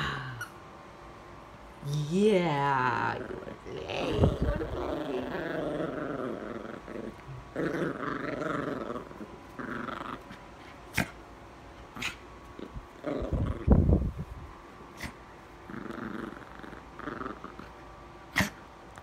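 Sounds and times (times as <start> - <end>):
dog growling: 2.6 - 11.2, 11.9 - 14.0, 14.9 - 18.6.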